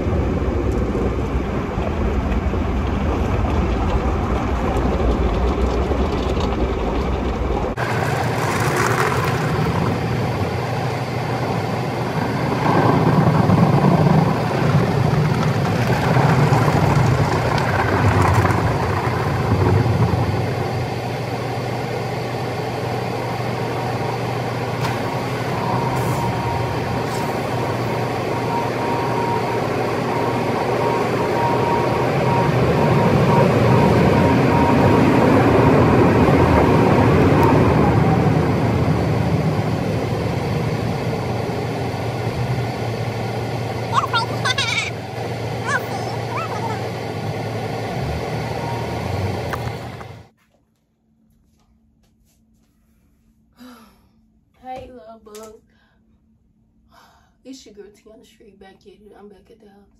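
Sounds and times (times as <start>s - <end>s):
vehicle running: 0.0s - 50.3s.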